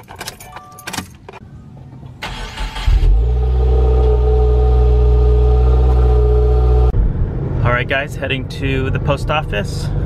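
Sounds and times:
car engine starting and idling: 0:01.9 - 0:08.0.

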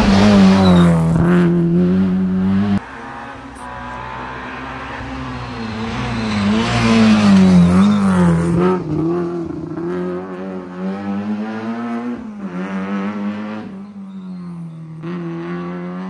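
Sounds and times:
rally car engine accelerating: 0:00.0 - 0:16.0.

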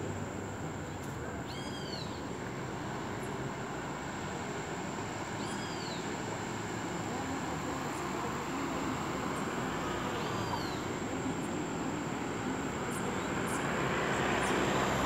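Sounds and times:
bird calling: 0:01.4 - 0:02.3, 0:05.4 - 0:06.1, 0:10.2 - 0:10.9.

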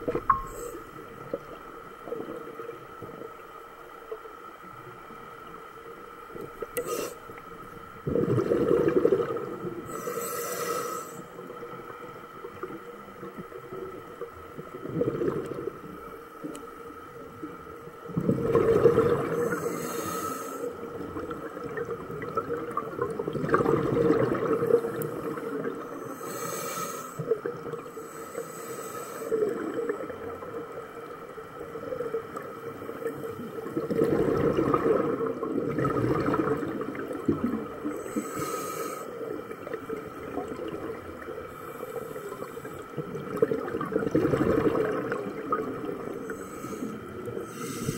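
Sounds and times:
gurgling exhaled bubbles: 0:00.0 - 0:03.4, 0:07.9 - 0:09.9, 0:11.4 - 0:16.0, 0:18.0 - 0:19.8, 0:20.8 - 0:25.9, 0:29.4 - 0:38.2, 0:39.2 - 0:47.9
faint steady tone: 0:00.0 - 0:33.9
hissing regulator inhalations: 0:06.8 - 0:07.4, 0:09.8 - 0:11.4, 0:19.3 - 0:20.8, 0:24.8 - 0:29.6, 0:37.9 - 0:39.3, 0:46.1 - 0:47.9.

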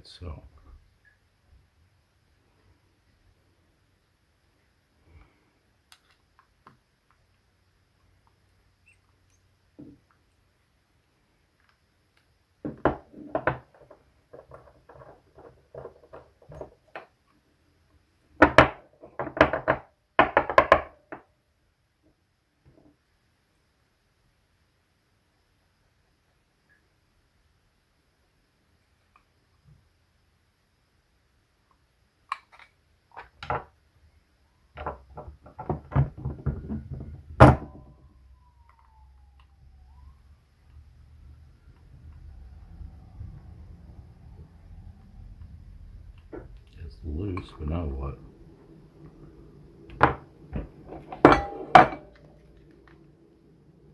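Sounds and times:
tools clattering on wooden desk: 0:12.7 - 0:17.1, 0:49.9 - 0:52.6
metal tools clinking on wood: 0:50.9 - 0:52.4.

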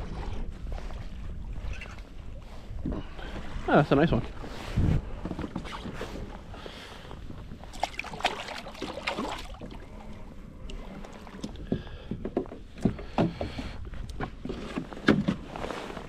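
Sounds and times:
wind and water rumble: 0:00.0 - 0:16.0
knocks and clicks on kayak: 0:11.4 - 0:15.5.

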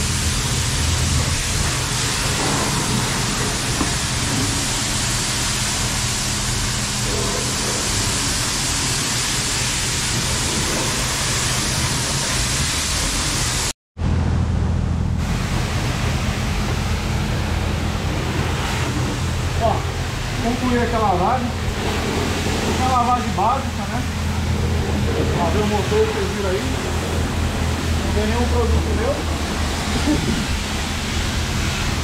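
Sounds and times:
high-pressure water spraying: 0:00.0 - 0:13.7, 0:15.2 - 0:32.0
low hum: 0:14.0 - 0:32.0.

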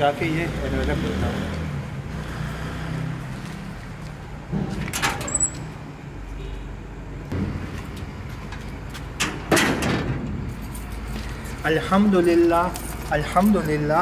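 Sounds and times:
metal gate clanking and rattling: 0:04.5 - 0:05.7, 0:09.2 - 0:14.0.

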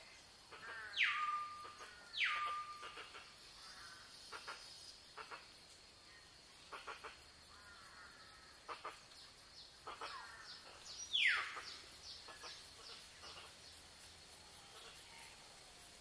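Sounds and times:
birds calling: 0:00.4 - 0:05.5, 0:08.6 - 0:15.1.

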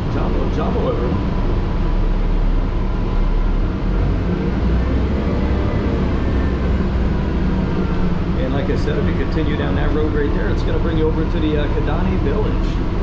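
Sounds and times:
bus engine and road rumble: 0:00.0 - 0:13.0.

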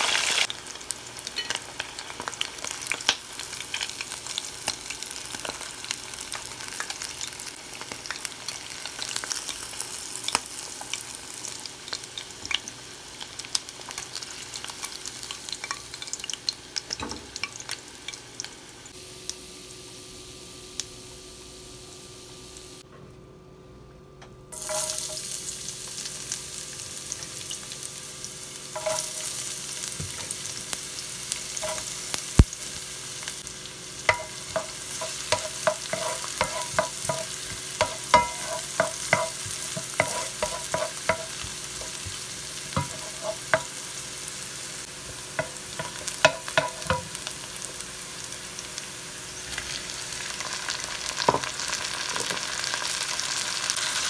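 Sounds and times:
onions sizzling in hot oil: 0:00.0 - 0:22.8, 0:24.5 - 0:54.0
spatula scraping a pan: 0:31.6 - 0:31.9, 0:34.1 - 0:43.7.

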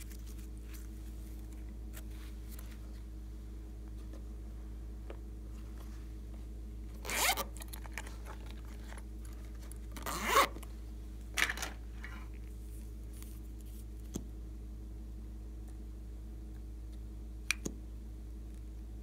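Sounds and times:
zipper being pulled: 0:07.0 - 0:08.9, 0:09.9 - 0:10.6
small click: 0:17.5 - 0:17.8.

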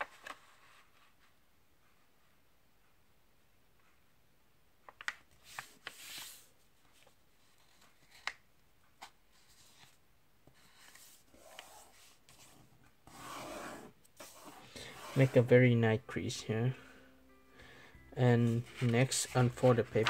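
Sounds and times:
paper rustling: 0:05.0 - 0:08.4, 0:18.5 - 0:20.0
paper rubbing scrape: 0:10.6 - 0:15.5.

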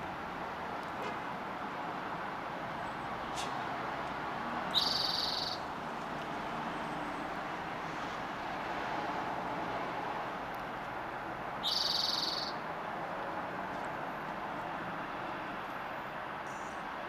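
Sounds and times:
steady background noise: 0:00.0 - 0:17.0
bird singing a trill: 0:04.7 - 0:05.7, 0:11.6 - 0:12.6.

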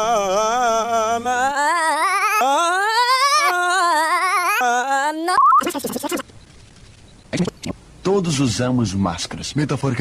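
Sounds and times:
person singing with vibrato: 0:00.0 - 0:06.2.

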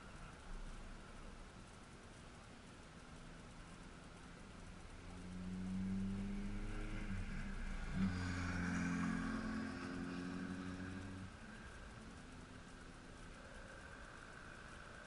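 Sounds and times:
car driving past: 0:05.1 - 0:11.8.

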